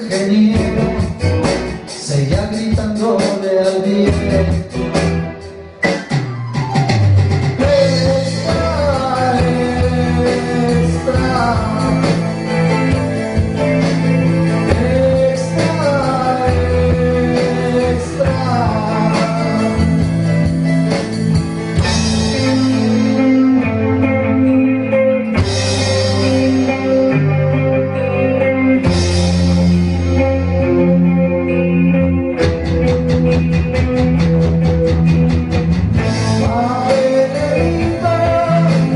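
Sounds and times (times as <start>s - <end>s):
person singing: 0.0s - 5.0s, 7.6s - 20.7s, 21.6s - 28.2s, 36.0s - 38.9s
electric bass line: 0.0s - 38.9s
live band playing: 0.0s - 38.9s.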